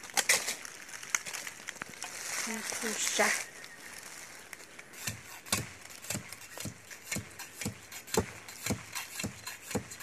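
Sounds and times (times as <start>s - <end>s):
machete chopping tree trunk: 5.0s - 10.0s.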